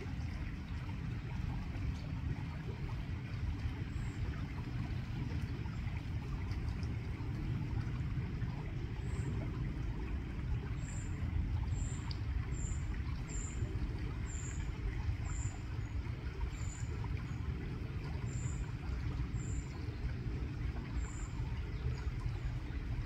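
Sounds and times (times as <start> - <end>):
river water running over stones: 0.0 - 23.0.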